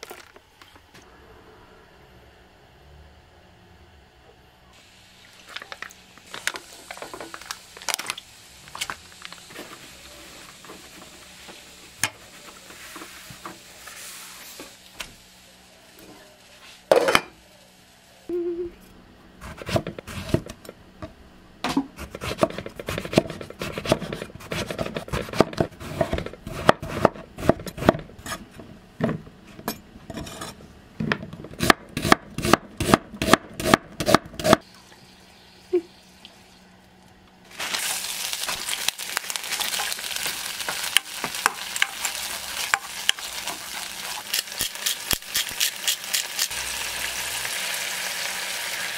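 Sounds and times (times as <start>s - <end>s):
onions sizzling in oil: 4.8s - 18.1s, 37.5s - 48.9s.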